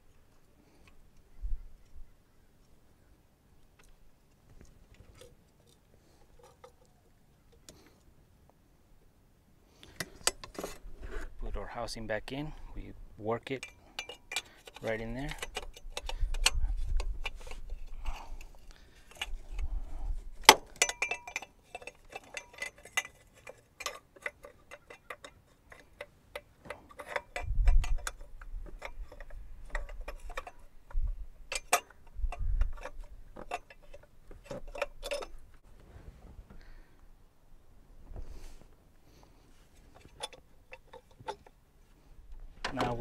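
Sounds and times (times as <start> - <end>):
metallic tool clicks and clinks: 13.5 - 17.4, 20.7 - 30.6.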